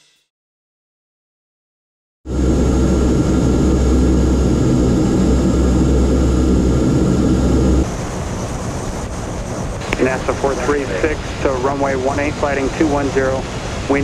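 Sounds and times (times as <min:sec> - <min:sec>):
turboprop engines droning: 0:02.3 - 0:14.0.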